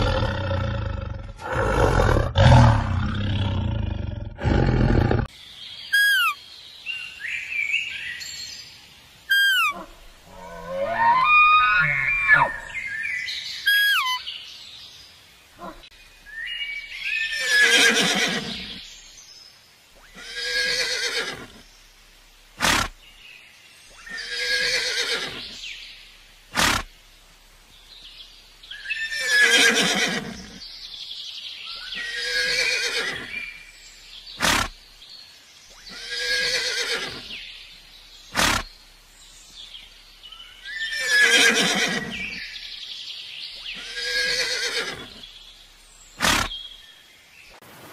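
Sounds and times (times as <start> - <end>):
horse neighing: 20.1 - 21.5, 29.1 - 30.5, 35.9 - 37.3, 43.8 - 45.2.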